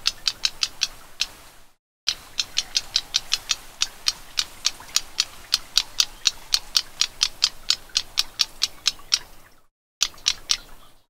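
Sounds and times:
warbler harsh call notes: 0:02.1 - 0:09.4.

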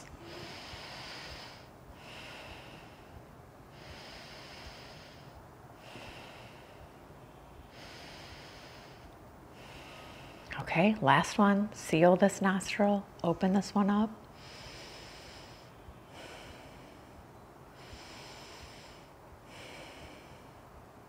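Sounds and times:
breathing through nostril: 0:00.0 - 0:10.5.

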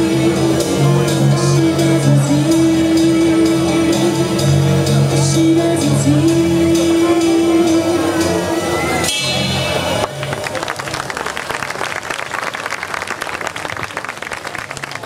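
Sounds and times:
orchestra and singer bossa nova: 0:00.0 - 0:09.0
audience applause: 0:10.0 - 0:15.0.

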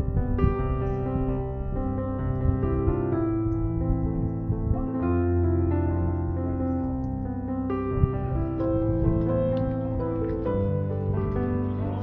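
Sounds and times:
gentle piano music: 0:00.0 - 0:12.0.

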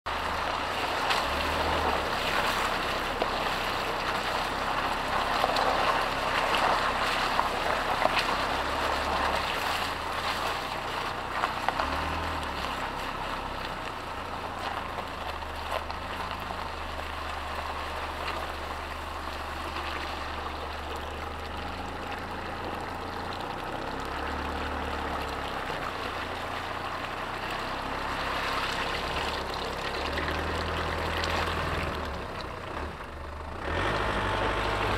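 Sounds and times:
diesel engine running: 0:00.0 - 0:34.9
tyre crunching over gravel: 0:00.2 - 0:22.2.

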